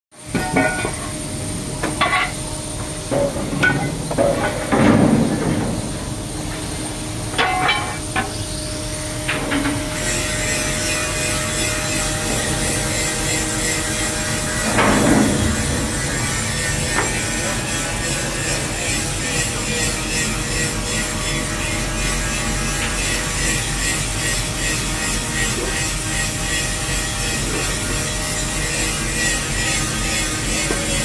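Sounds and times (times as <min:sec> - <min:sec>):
knocks and clanks: 0:03.1 - 0:06.0, 0:07.3 - 0:08.4, 0:14.6 - 0:17.8
electric vacuum pump humming: 0:04.8 - 0:31.0.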